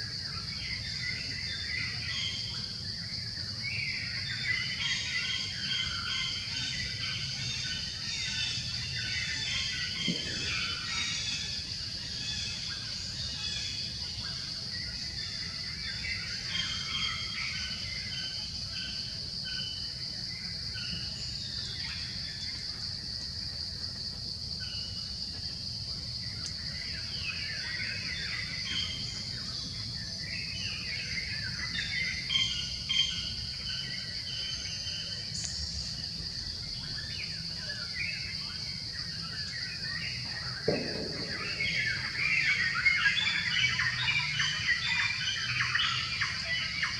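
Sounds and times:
birds chirping: 26.2s - 46.9s.

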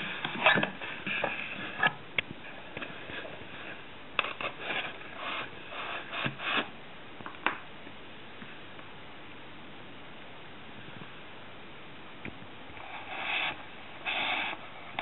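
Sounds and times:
cardboard rubbing and scraping: 0.0s - 6.8s, 12.8s - 15.0s
faint steady hiss: 0.0s - 15.0s.

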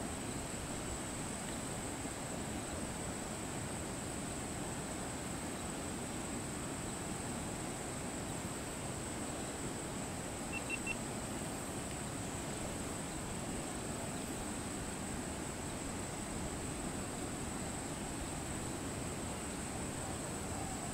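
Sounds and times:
outdoor background hiss: 0.0s - 20.9s
quick high chirps: 10.5s - 11.0s.

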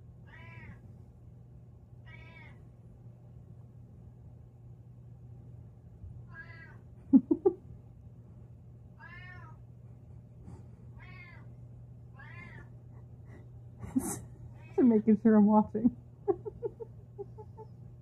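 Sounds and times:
cat meowing: 0.3s - 0.8s, 2.0s - 2.6s, 6.3s - 6.8s, 9.0s - 9.6s, 11.0s - 11.5s, 12.2s - 12.7s.

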